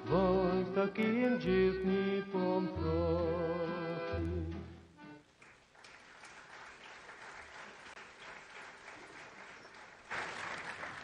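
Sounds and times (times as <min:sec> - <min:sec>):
audience applauding: 0:05.3 - 0:11.0.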